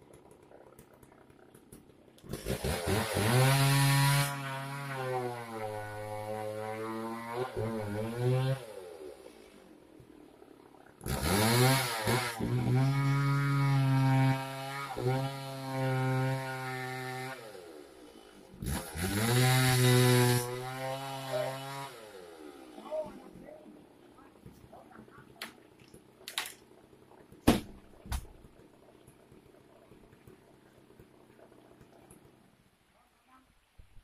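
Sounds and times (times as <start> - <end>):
chainsaw engine idling and revving: 0.0 - 10.0, 11.0 - 24.1, 28.4 - 32.5.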